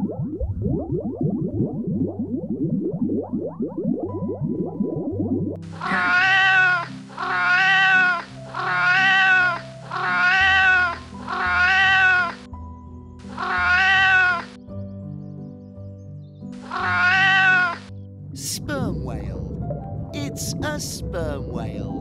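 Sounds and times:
cat meowing: 5.8s - 12.4s, 13.3s - 14.5s, 16.7s - 17.9s.

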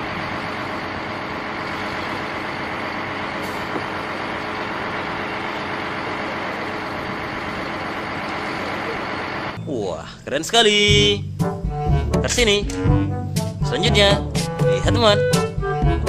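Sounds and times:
diesel engine running: 0.0s - 9.6s.

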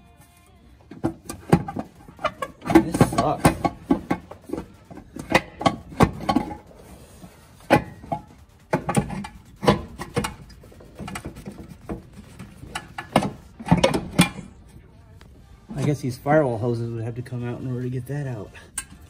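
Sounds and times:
metal pipe clanking and scraping: 0.9s - 14.7s.

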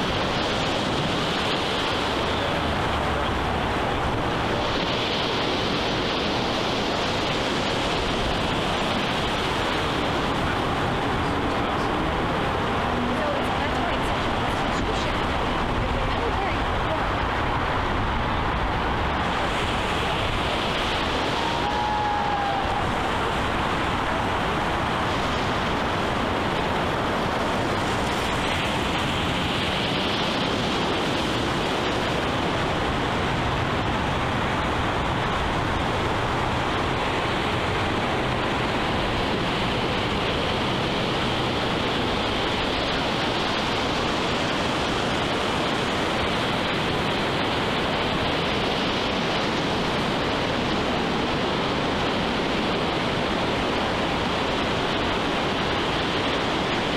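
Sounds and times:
ocean surf washing over rocks: 0.0s - 56.9s.

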